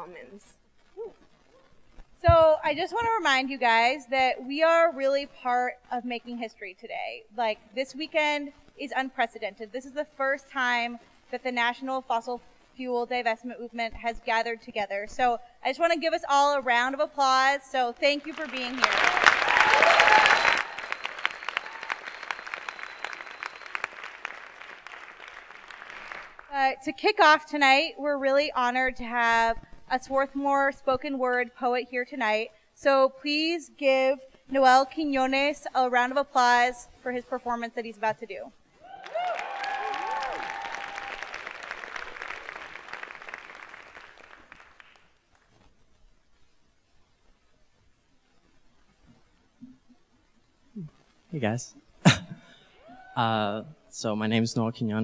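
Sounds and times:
audience applause: 18.2 - 26.5, 38.9 - 45.1
scattered single claps: 18.3 - 26.5, 39.0 - 45.5.

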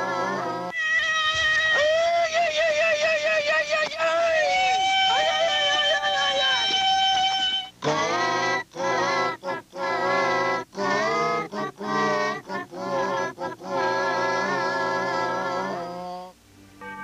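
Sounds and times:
person singing: 0.0 - 17.0
musical accompaniment: 16.5 - 17.0.

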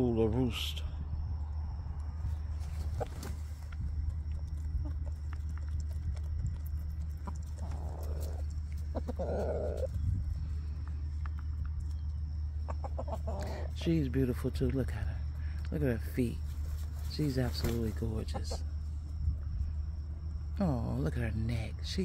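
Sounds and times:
soft bird noises: 0.0 - 22.0
steady low rumble: 0.0 - 22.0
chickens pecking clicks: 2.8 - 13.6, 14.5 - 15.8, 16.7 - 18.6.

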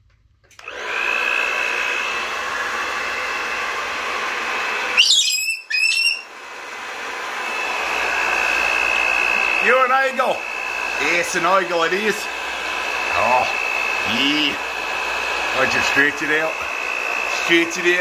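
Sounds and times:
hair dryer whining: 0.2 - 18.0
cockatoo screeching: 5.0 - 6.3.

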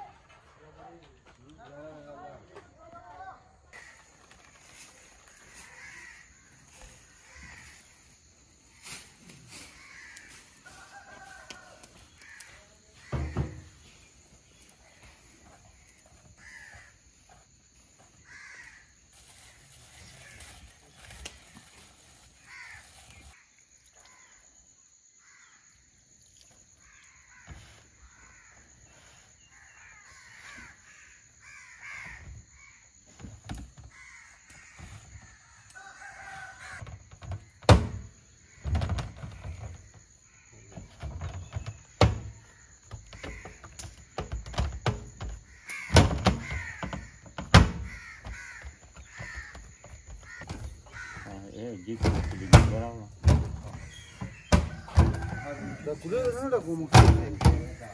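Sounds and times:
crows cawing: 3.7 - 8.3, 9.6 - 13.9, 15.8 - 17.2, 18.2 - 19.1, 22.4 - 23.5, 25.1 - 25.7, 26.8 - 33.0, 33.8 - 37.1, 42.4 - 44.0, 45.2 - 53.0, 53.7 - 57.9
sharp knocks and thuds: 13.0 - 14.0, 36.8 - 40.0, 40.6 - 55.6, 56.9 - 57.9.

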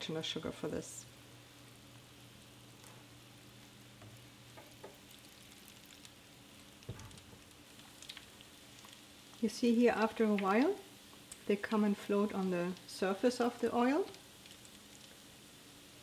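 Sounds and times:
dough sizzling in oil: 1.1 - 16.0
soft thump: 6.9 - 7.4.

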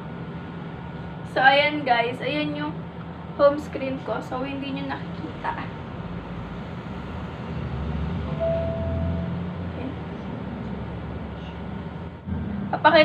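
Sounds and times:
short steady tone: 8.3 - 9.5.

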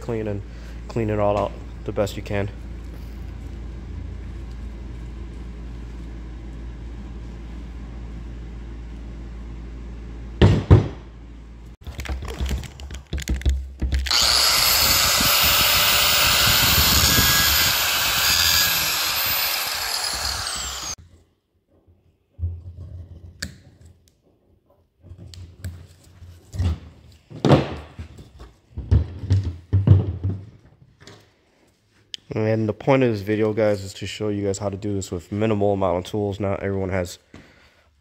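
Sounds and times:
angle grinder whining: 14.0 - 21.0.

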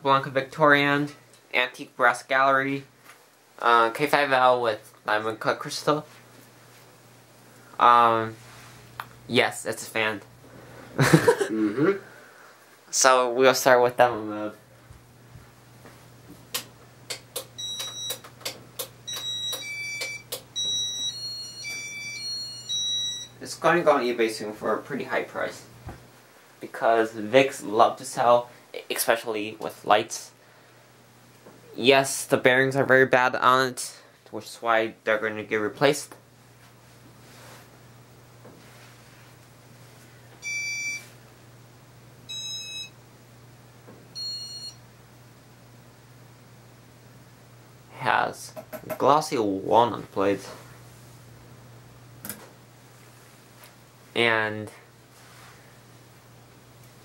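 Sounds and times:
ceiling fan humming: 0.0 - 57.0
fan control clicks: 16.5 - 20.5.

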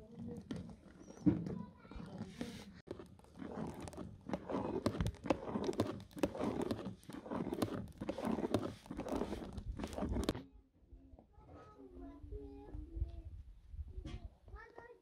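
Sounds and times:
spoon scraping pot: 1.9 - 10.4.

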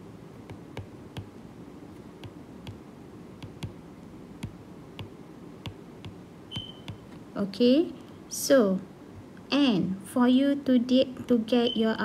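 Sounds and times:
faint room noise: 0.0 - 12.0
stylus tapping on glass screen: 3.4 - 3.8, 4.4 - 7.0.

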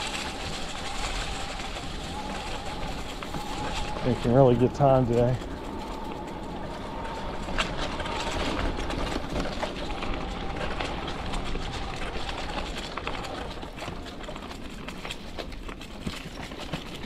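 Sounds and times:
electric motor whine: 0.0 - 13.3
tyre and wind noise: 0.0 - 17.0.

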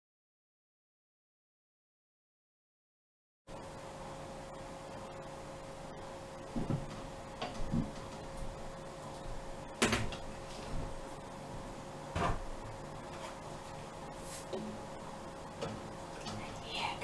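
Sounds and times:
faint steady hum: 3.5 - 17.0.

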